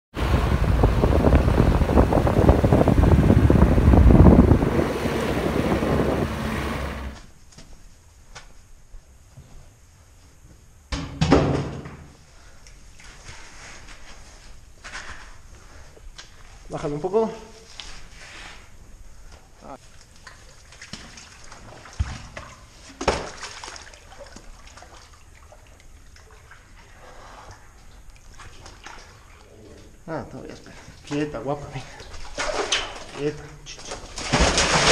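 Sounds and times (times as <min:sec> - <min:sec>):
deep car rumble: 0:00.1 - 0:07.2
wind buffeting microphone: 0:00.1 - 0:07.2
water sloshing and trickling: 0:19.8 - 0:34.9.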